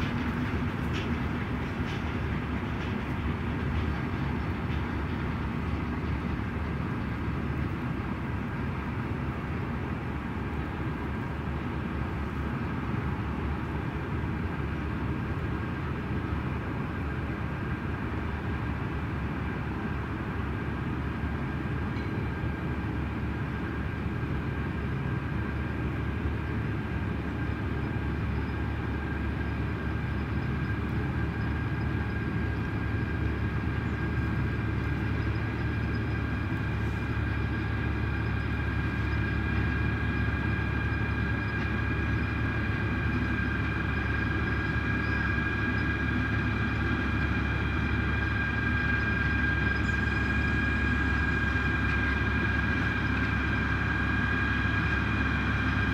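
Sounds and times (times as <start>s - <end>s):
train engine hum: 0.0s - 55.9s
faint high whine: 24.6s - 55.9s.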